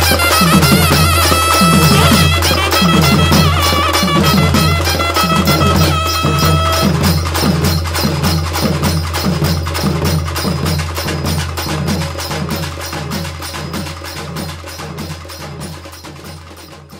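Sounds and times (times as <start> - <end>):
held melody note: 0.0 - 7.9
folk drum ensemble: 0.0 - 16.9.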